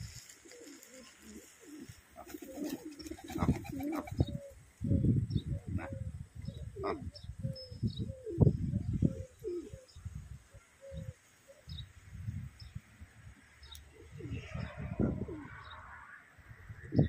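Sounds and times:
pigeons cooing: 0.0s - 10.0s, 13.9s - 15.9s.

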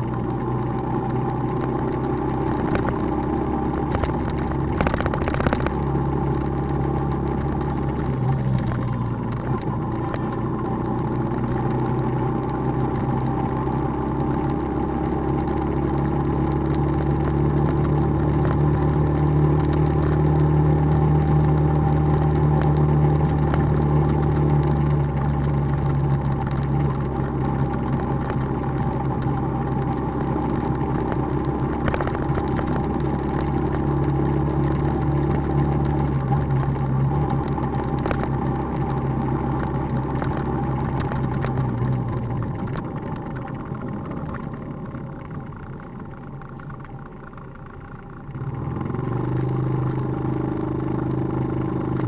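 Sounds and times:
motorbike engine running: 0.0s - 52.0s.

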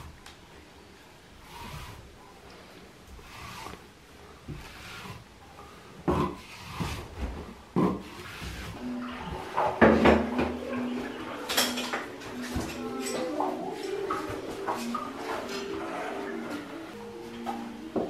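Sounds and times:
putty knife scraping plaster: 6.1s - 7.2s.

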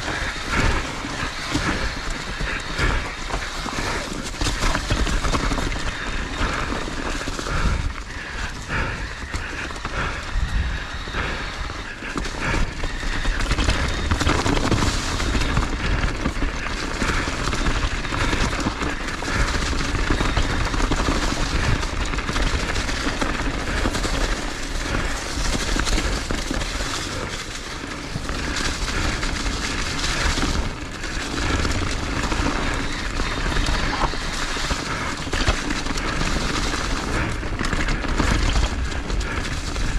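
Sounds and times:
wind rushing over microphone: 0.0s - 16.2s
skis scraping on packed snow: 0.0s - 39.9s.

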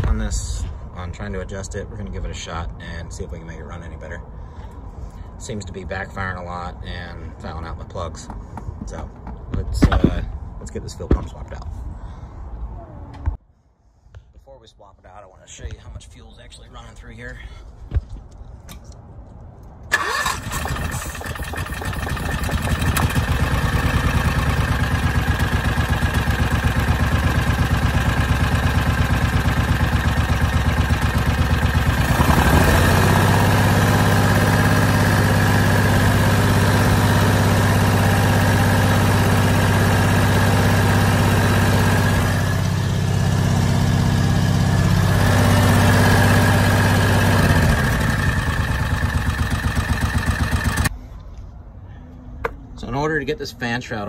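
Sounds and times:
engine starting and running: 19.9s - 50.9s.

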